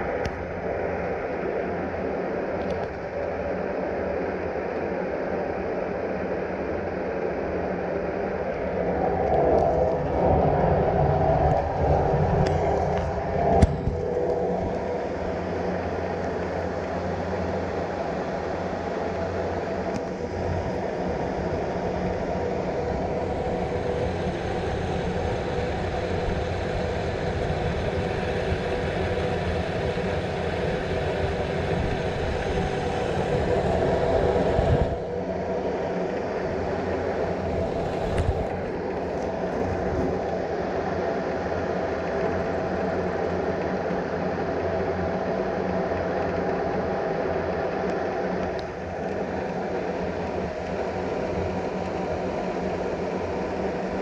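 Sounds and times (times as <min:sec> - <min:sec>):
cable car cabin rumble and hum: 0:00.0 - 0:54.0.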